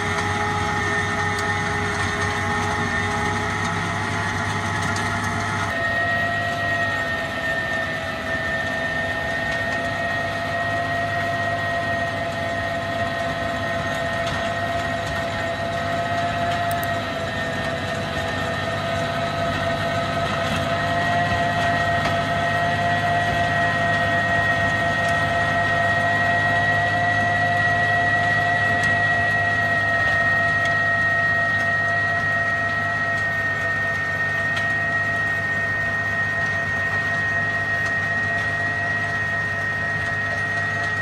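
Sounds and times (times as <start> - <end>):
stone crusher high whine: 0.0 - 41.0
tractor engine drone: 0.0 - 41.0.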